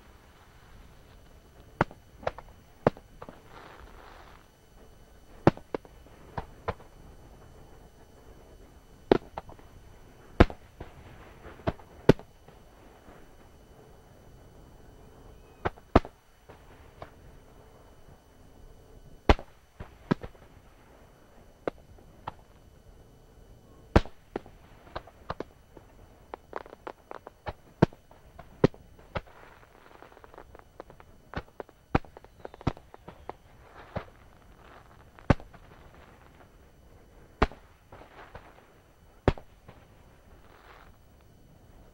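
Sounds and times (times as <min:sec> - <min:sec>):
fireworks bursting with sharp bangs: 0:00.0 - 0:13.6, 0:15.1 - 0:17.8, 0:19.2 - 0:22.6, 0:23.8 - 0:41.9
firework bangs: 0:23.9 - 0:36.5, 0:37.3 - 0:41.0.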